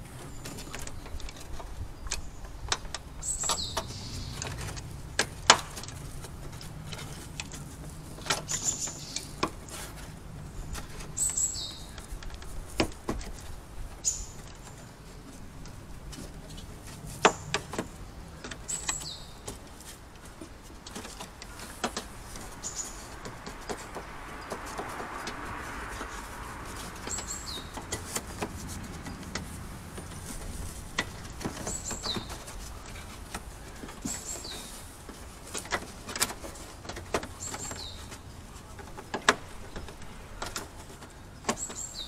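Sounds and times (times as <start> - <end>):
bird chirping: 0.2 - 4.8, 8.4 - 9.5, 10.6 - 12.3, 14.0 - 15.2, 17.2 - 19.6, 21.4 - 25.0, 25.9 - 33.0, 33.6 - 34.8, 37.3 - 38.8, 41.2 - 42.0.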